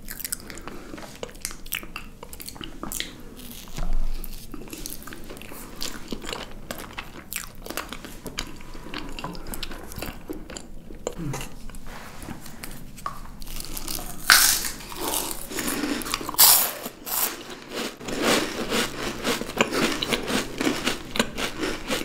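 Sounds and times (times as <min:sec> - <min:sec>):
crunchy chewing: 0:00.0 - 0:11.8, 0:13.0 - 0:22.0
crunching bites of wafer: 0:13.4 - 0:22.0.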